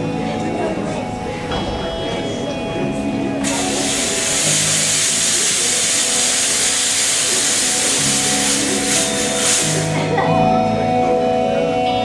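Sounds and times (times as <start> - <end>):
background music with low notes: 0.0 - 12.0
fog machine hissing: 3.4 - 10.2.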